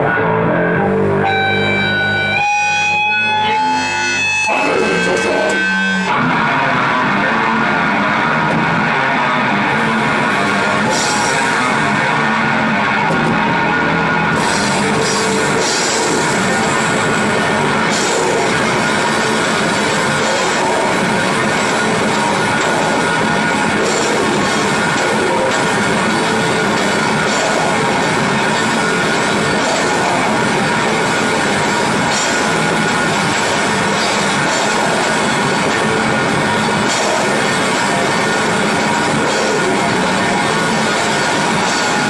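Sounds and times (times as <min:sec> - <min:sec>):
distorted electric guitars: 0:00.0 - 0:42.0
drums: 0:00.0 - 0:42.0
cymbals: 0:14.4 - 0:42.0.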